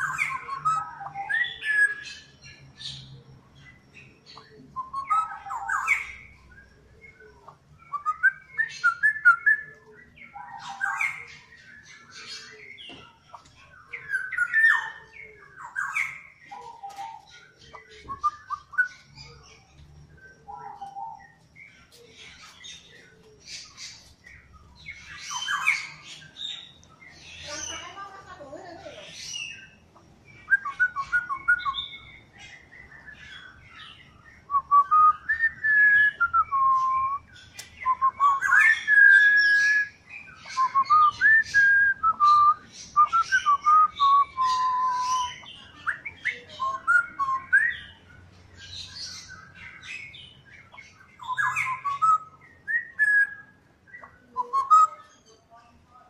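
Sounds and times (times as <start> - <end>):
bird singing whistled phrases: 0.0 - 3.1, 4.3 - 6.3, 7.0 - 13.0, 13.8 - 19.5, 24.8 - 28.1, 30.4 - 48.0, 48.7 - 55.4.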